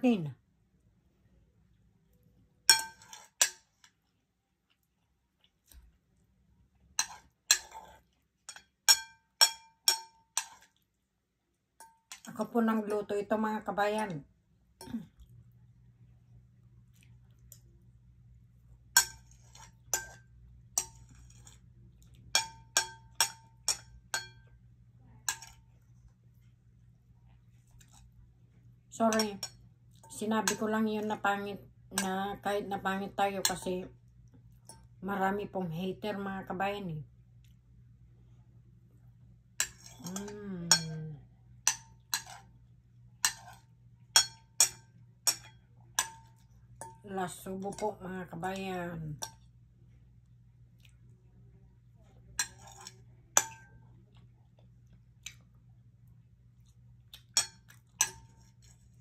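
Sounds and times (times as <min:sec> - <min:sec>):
cutlery clinking on a plate: 0:02.7 - 0:03.6.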